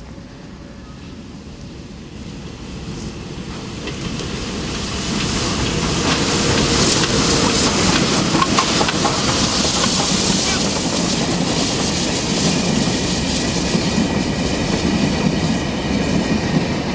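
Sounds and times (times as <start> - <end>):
steam locomotive exhaust: 3.9 - 15.7.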